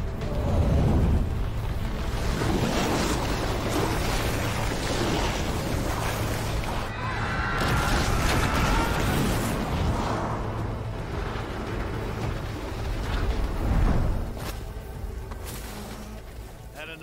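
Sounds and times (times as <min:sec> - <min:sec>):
shockwave rumble and debris: 0:00.0 - 0:06.9, 0:07.6 - 0:14.4
music: 0:00.0 - 0:17.0.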